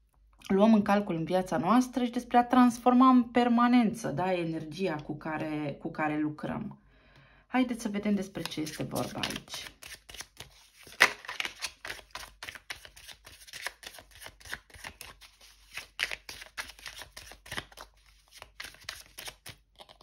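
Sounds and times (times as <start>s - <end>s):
cards being shuffled: 8.3s - 20.0s.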